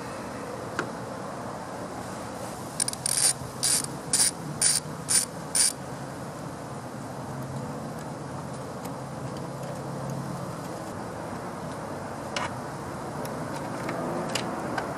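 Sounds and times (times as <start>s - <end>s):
ratchet wrench clicking: 2.8s - 5.8s.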